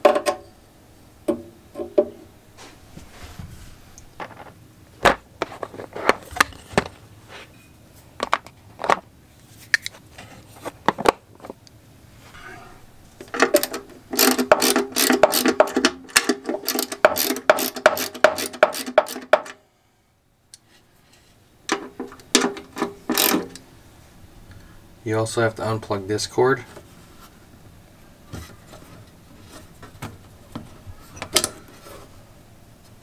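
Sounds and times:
hand ratchet driver clicking: 13.4s - 19.6s.

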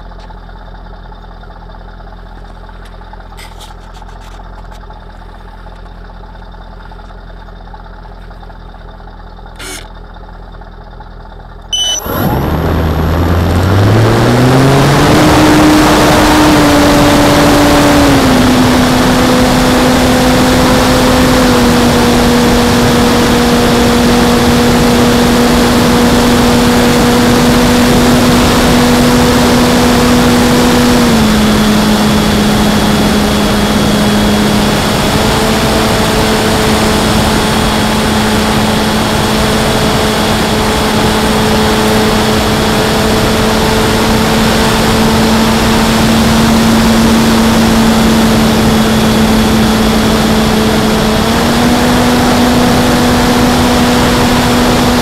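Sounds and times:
model plane electric motor humming: 9.6s - 9.9s.

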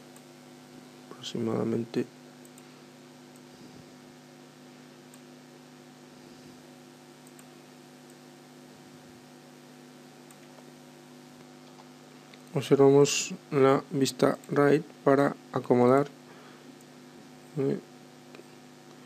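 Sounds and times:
faint electrical hum: 0.0s - 19.0s
computer mouse clicks: 7.2s - 8.2s.

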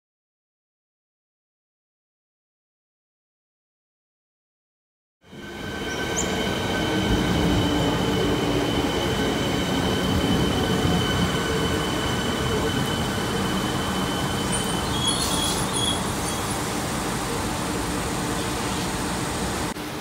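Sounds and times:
train whine: 5.3s - 20.0s
train wheels rumbling: 5.4s - 20.0s.

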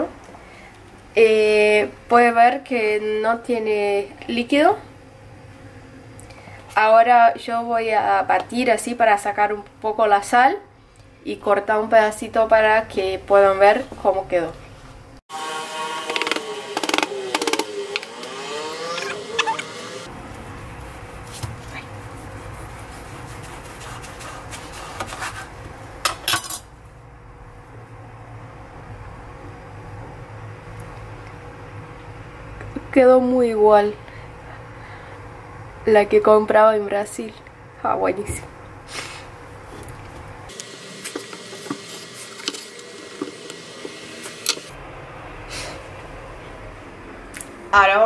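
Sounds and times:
knife sawing through dried meat: 21.8s - 25.5s.

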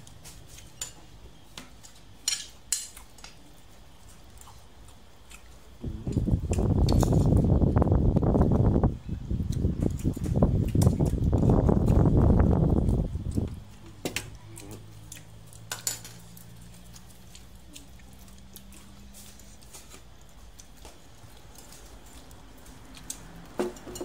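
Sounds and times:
faint low hum: 0.0s - 24.0s
crockery and cutlery clinking: 15.6s - 16.4s, 23.6s - 24.0s.

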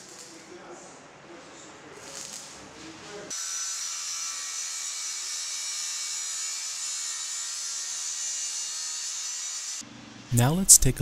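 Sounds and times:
angle grinder cutting steel pipe: 3.3s - 9.8s.

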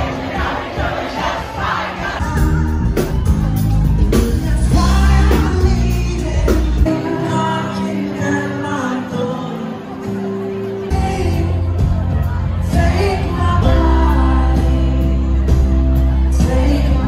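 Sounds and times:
crowd noise: 0.0s - 17.0s
live pop-rock band: 0.0s - 17.0s
person singing: 2.0s - 17.0s
heavy bass: 2.2s - 7.0s, 10.9s - 17.0s.

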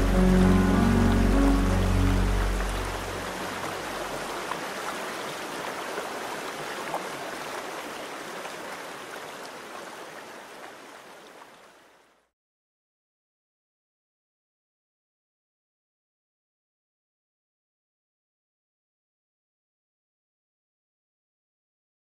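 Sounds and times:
low music: 0.0s - 4.3s
river water rushing over rocks: 0.0s - 11.9s.

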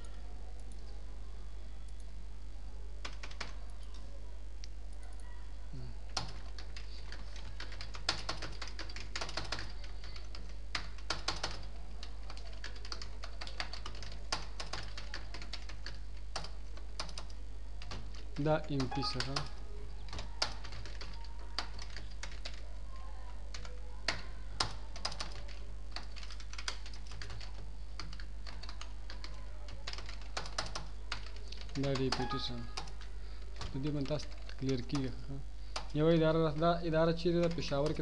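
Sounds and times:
typing on computer keyboard: 3.0s - 4.0s, 6.1s - 19.5s, 20.1s - 22.7s, 23.5s - 35.1s, 35.7s - 36.7s.

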